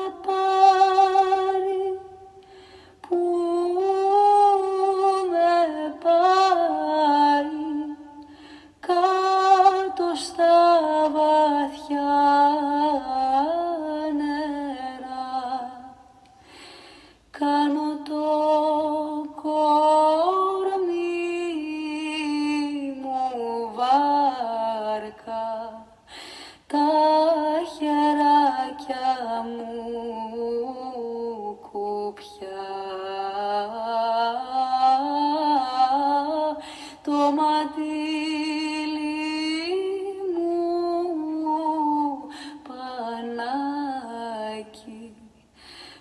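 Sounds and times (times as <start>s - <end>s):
woman singing: 0.0s - 16.5s, 17.3s - 46.0s
breaths: 2.4s - 3.0s, 8.2s - 8.8s, 16.3s - 17.3s, 26.0s - 26.7s, 36.6s - 37.0s, 42.2s - 42.6s, 45.4s - 46.0s.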